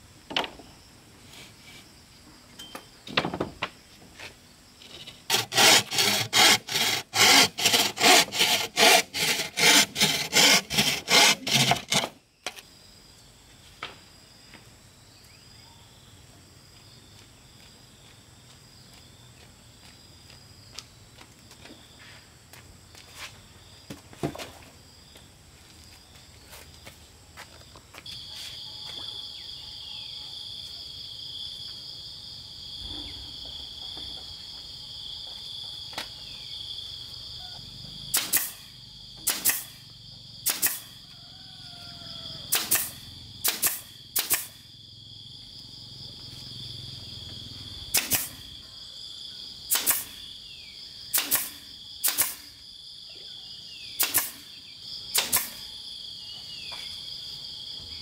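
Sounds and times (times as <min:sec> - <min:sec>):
nail gun firing into bamboo: 0:38.1 - 0:39.8, 0:40.4 - 0:41.0, 0:42.5 - 0:44.6, 0:47.9 - 0:48.5, 0:49.7 - 0:50.2, 0:51.1 - 0:52.6, 0:54.0 - 0:54.5, 0:55.1 - 0:55.7.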